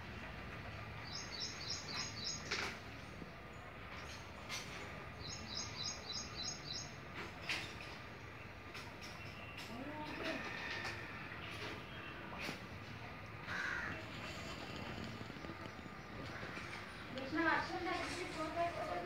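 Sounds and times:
background noise: 0.0s - 19.0s
small bird chirping: 1.0s - 2.6s, 5.2s - 7.0s.

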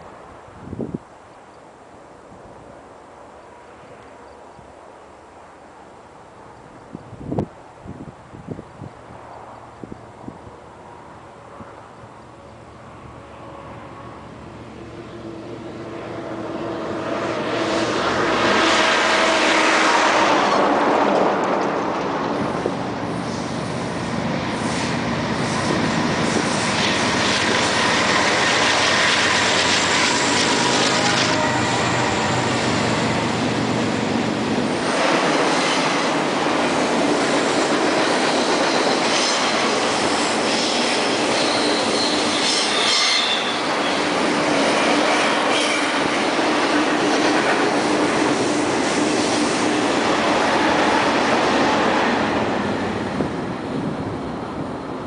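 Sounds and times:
diesel locomotive engines: 0.0s - 55.0s
train wheels rumbling on rails: 9.1s - 55.0s
train wheels squealing: 24.6s - 33.4s, 37.2s - 46.3s.

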